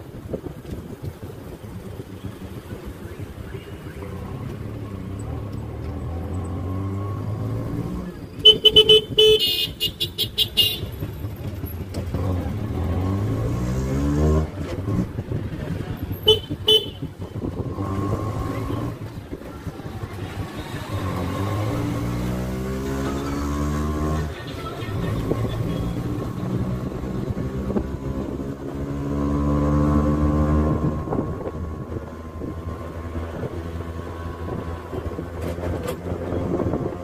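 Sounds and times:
auto rickshaw engine running: 0.0 - 37.0
vehicle horns honking: 8.4 - 11.1, 16.1 - 17.4.

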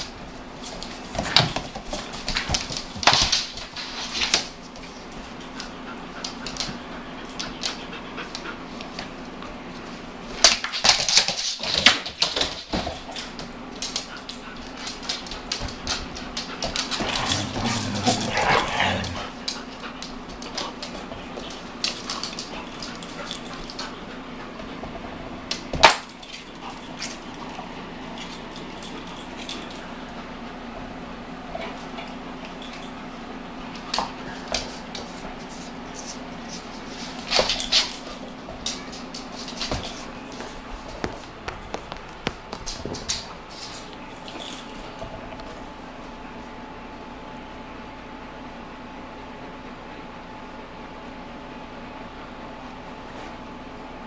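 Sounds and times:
dog claws clicking on wood floor: 0.0 - 9.1, 10.4 - 24.0, 33.8 - 45.8.

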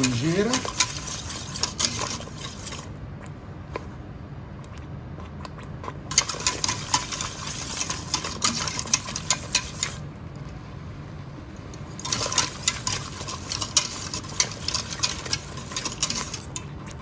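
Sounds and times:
whisk scraping metal pot: 0.0 - 2.9, 6.1 - 10.0, 12.0 - 17.0.

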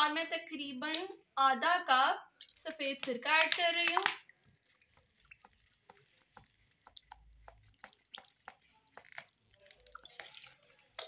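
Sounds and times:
vinegar dripping into water: 2.2 - 11.0.

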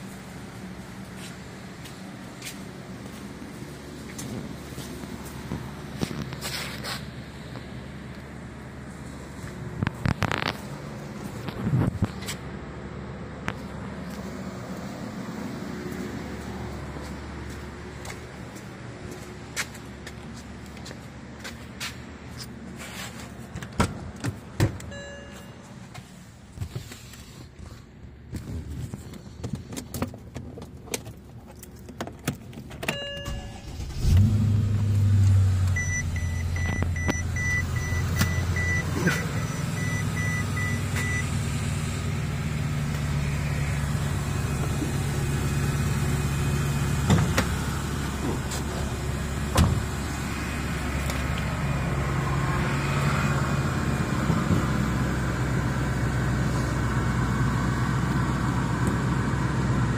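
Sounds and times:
car engine starting and idling: 23.2 - 59.9
short warning beeps: 24.9 - 25.6, 32.9 - 33.7, 35.8 - 41.3.

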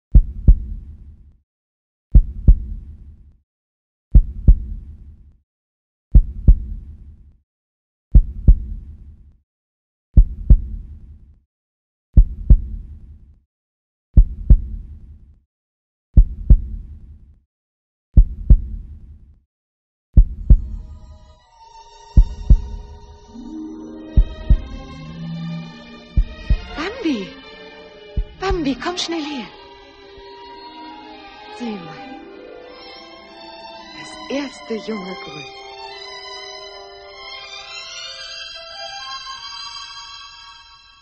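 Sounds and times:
heavy heartbeat thumps: 0.1 - 1.1, 2.1 - 3.0, 4.1 - 5.0, 6.1 - 6.9, 8.2 - 8.9, 10.2 - 11.0, 12.2 - 13.0, 14.2 - 15.0, 16.2 - 17.0, 18.2 - 19.0, 20.2 - 21.0, 22.2 - 23.0, 24.0 - 25.4, 26.0 - 27.0, 28.2 - 28.6.

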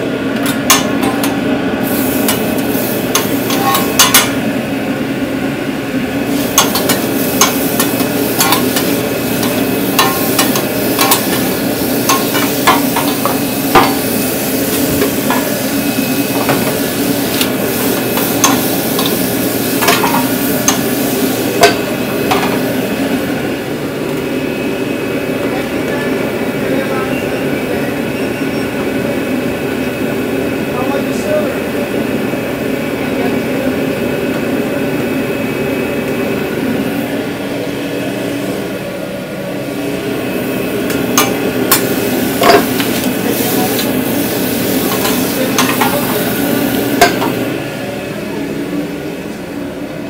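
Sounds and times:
food sizzling: 1.8 - 4.5, 6.2 - 23.2, 40.7 - 47.5
metal utensil striking pan: 3.2 - 4.4, 6.6 - 11.5, 12.1 - 14.0.

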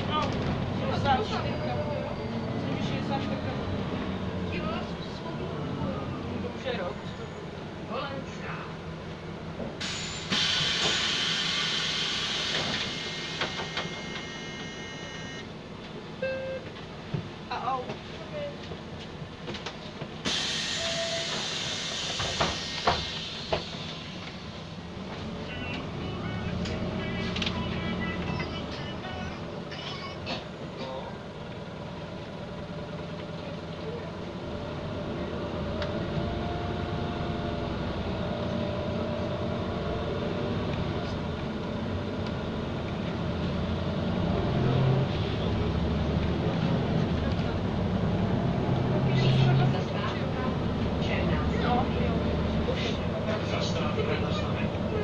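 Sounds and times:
bus engine drone: 0.0 - 55.0
bus doors air hiss: 9.8 - 15.1, 20.2 - 24.7.

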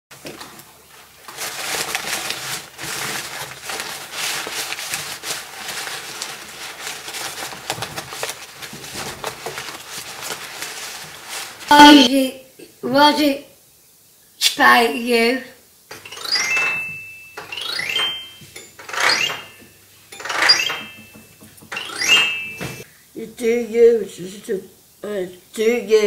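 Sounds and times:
paper crinkling and rustling: 0.1 - 11.7.

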